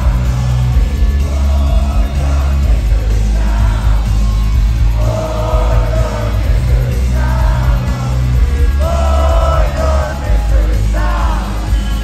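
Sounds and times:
booming bass and drums: 0.0 - 12.0
live rock band: 0.0 - 12.0
person singing: 5.0 - 12.0.

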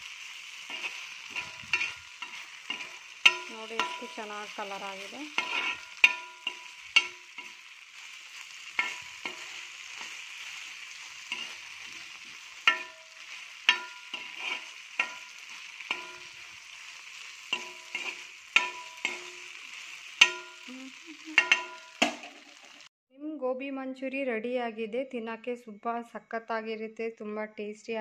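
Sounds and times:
food sizzling in a frying pan: 0.0 - 22.9
spatula scraping pan: 0.1 - 20.7.

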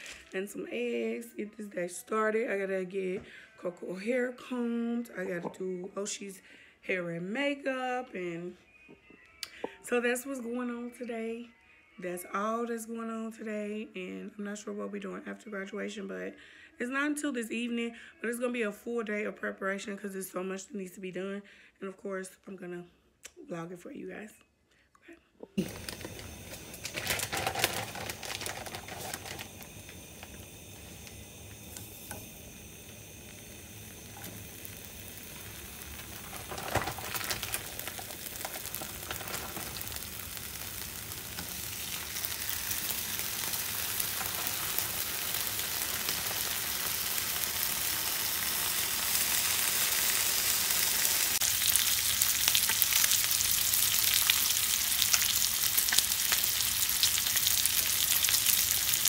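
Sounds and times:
food sizzling in a pan: 0.0 - 1.1, 25.6 - 59.0.

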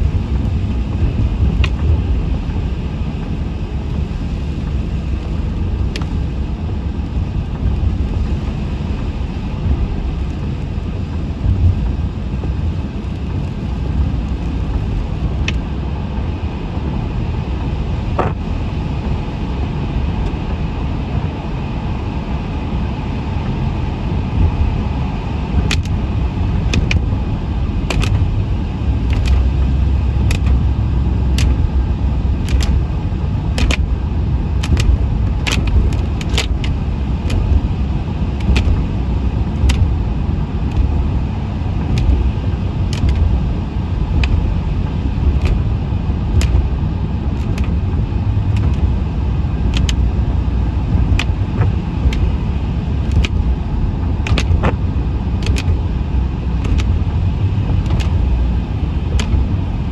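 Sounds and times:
vehicle road and engine rumble: 0.0 - 59.9
sharp clicks: 25.7 - 26.0, 29.1 - 29.5, 30.2 - 30.6, 31.3 - 31.6, 32.4 - 32.8, 33.6 - 33.8, 46.4 - 46.7, 47.4 - 47.8, 49.7 - 50.0, 53.0 - 53.4, 54.2 - 54.8, 55.4 - 55.8, 56.6 - 57.0, 57.8 - 58.2, 59.1 - 59.5.

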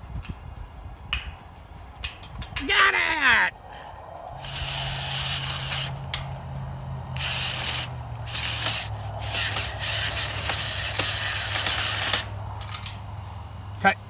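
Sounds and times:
rasping noise: 3.6 - 13.5
cordless drill running: 4.4 - 6.0, 7.2 - 12.3.

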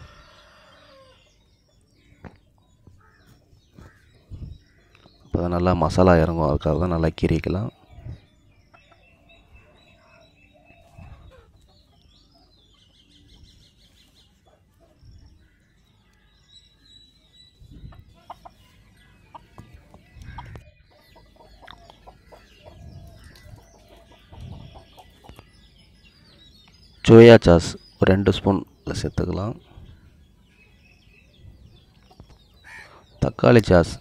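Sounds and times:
hens clucking: 17.9 - 25.4.

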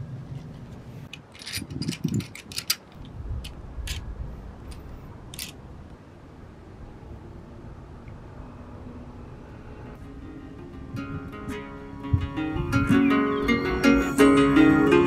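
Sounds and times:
clicks and metallic clinks: 4.7 - 5.6.

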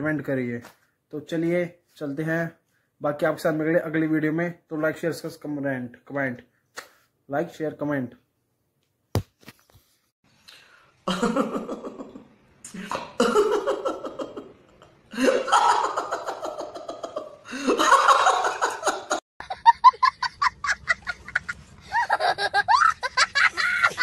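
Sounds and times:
man laughing heartily: 11.1 - 12.2, 12.8 - 24.0
boy laughing: 15.2 - 24.0.

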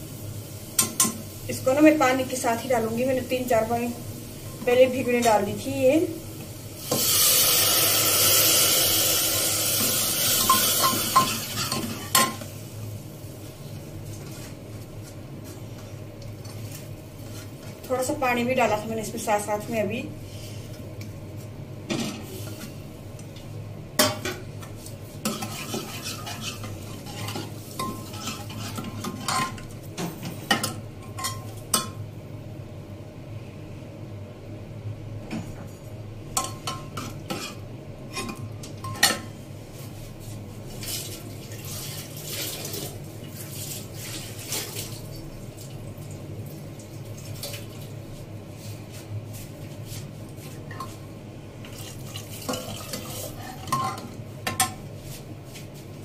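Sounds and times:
ladle clinking and scraping pot: 25.2 - 29.7.

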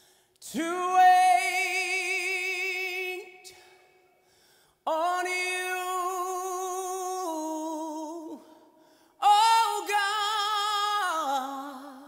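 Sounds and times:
man singing unaccompanied: 0.5 - 3.5, 4.9 - 8.4, 9.2 - 12.0.

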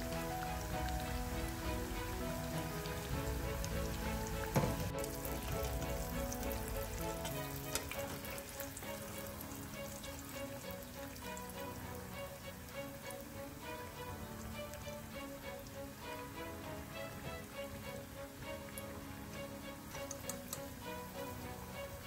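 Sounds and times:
background music: 0.0 - 22.0
chicken deep-frying in oil: 0.0 - 22.0
click: 19.9 - 20.7.

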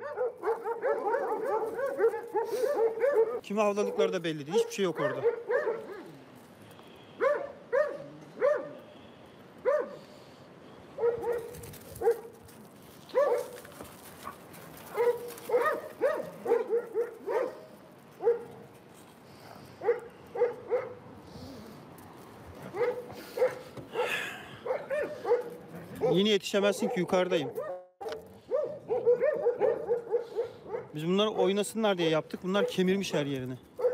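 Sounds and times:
dogs barking: 0.0 - 6.1, 7.2 - 8.8, 9.6 - 10.0, 11.0 - 12.4, 13.1 - 18.7, 19.6 - 21.2, 22.6 - 31.7, 32.6 - 33.0.

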